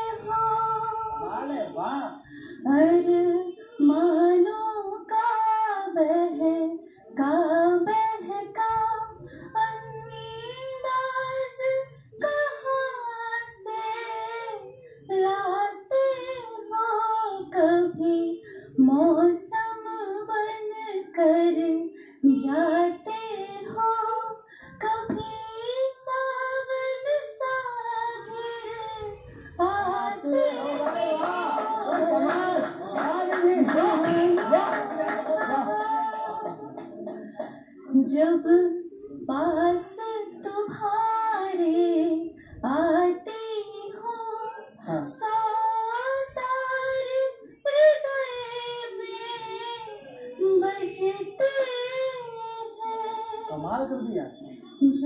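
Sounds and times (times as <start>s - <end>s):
applause: 30.3s - 37.2s.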